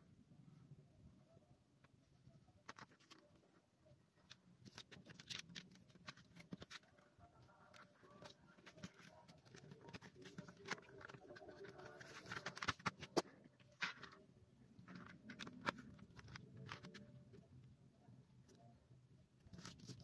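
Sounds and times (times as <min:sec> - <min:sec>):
paper booklet rustling: 0:02.6 - 0:03.4, 0:04.2 - 0:14.2, 0:14.8 - 0:17.1, 0:19.5 - 0:20.0.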